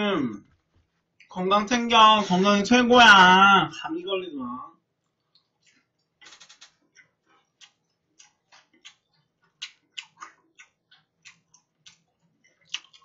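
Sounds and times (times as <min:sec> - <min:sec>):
crunchy chewing: 0:05.1 - 0:13.0.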